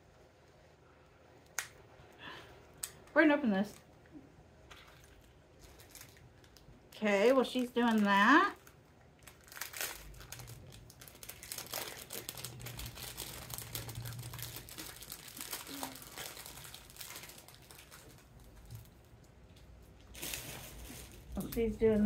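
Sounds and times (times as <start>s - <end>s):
packaging crinkling: 4.7s - 21.8s.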